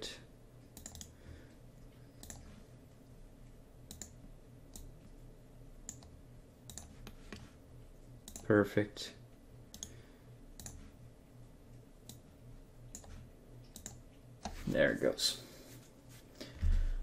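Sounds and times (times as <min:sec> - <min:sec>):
low steady hum: 0:00.0 - 0:17.0
computer mouse clicks: 0:00.7 - 0:01.2, 0:02.2 - 0:02.6, 0:03.8 - 0:05.0, 0:05.8 - 0:07.5, 0:08.2 - 0:08.5, 0:09.7 - 0:10.0, 0:10.6 - 0:10.9, 0:12.9 - 0:14.6.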